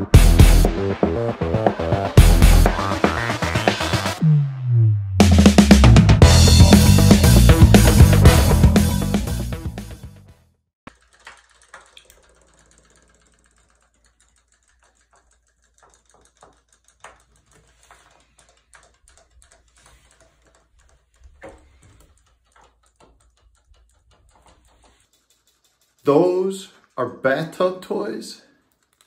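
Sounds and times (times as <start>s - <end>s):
toys clicking in water: 10.9s - 26.2s, 28.7s - 29.0s.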